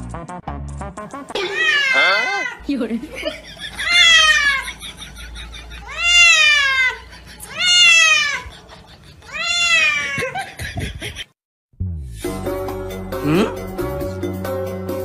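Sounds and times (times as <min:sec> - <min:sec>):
cat yowling: 0:01.4 - 0:02.6, 0:03.8 - 0:04.6, 0:05.8 - 0:08.6, 0:09.2 - 0:10.4.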